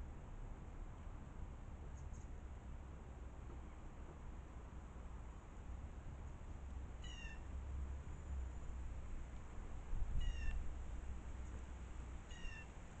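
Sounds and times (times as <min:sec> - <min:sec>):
short mewing calls: 0:07.0 - 0:07.5, 0:10.2 - 0:10.6, 0:12.3 - 0:12.7.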